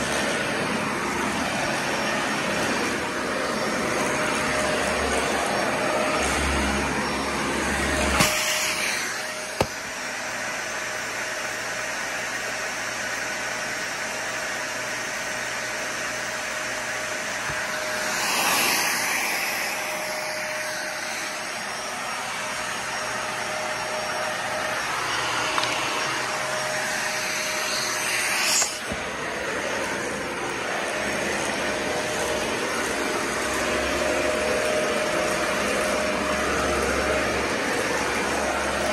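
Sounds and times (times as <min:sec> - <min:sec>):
vacuum cleaner running: 0:00.0 - 0:38.9.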